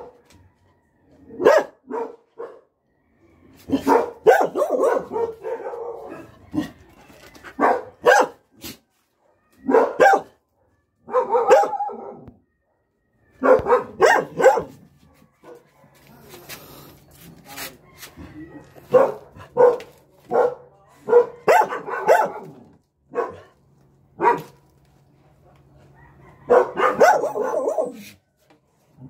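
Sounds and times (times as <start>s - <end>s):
dogs barking: 0.0s - 0.2s, 1.2s - 2.8s, 3.6s - 6.8s, 7.4s - 16.2s, 18.7s - 24.6s, 26.4s - 28.2s.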